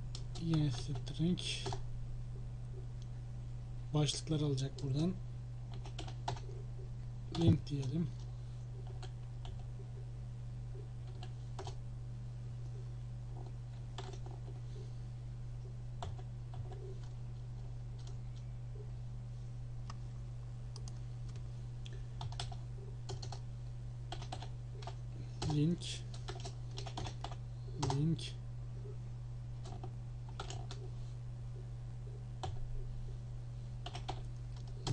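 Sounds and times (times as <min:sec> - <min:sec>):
low electrical hum: 0:00.0 - 0:34.9
computer keyboard keystrokes: 0:05.7 - 0:06.5, 0:08.8 - 0:09.6, 0:14.0 - 0:14.5, 0:20.7 - 0:21.4, 0:22.2 - 0:23.4, 0:24.1 - 0:28.0, 0:29.6 - 0:30.8, 0:33.8 - 0:34.9.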